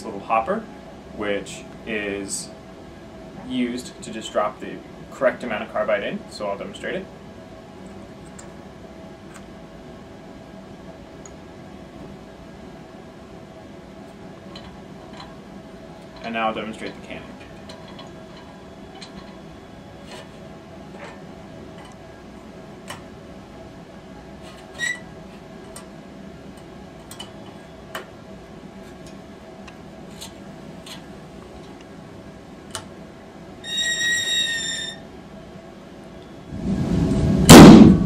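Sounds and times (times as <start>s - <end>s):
loud cannon bang: 37.5s - 38.0s.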